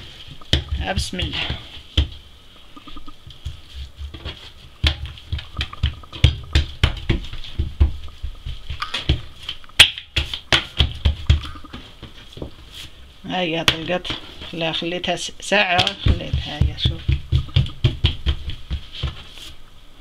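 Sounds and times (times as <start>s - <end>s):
hand slapping dough on table: 4.8s - 11.4s.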